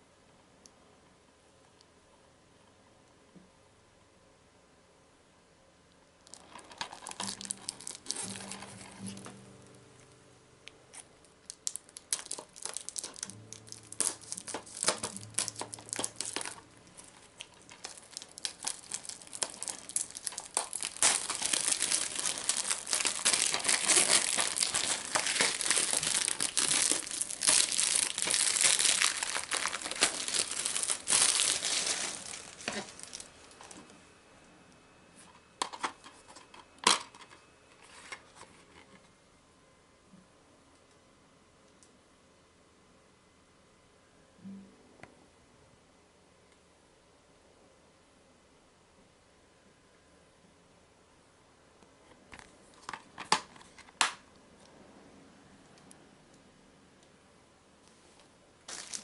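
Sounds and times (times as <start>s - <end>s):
plastic wrap tearing and crinkling: 6.3s - 9.6s, 10.9s - 33.9s, 58.7s - 59.0s.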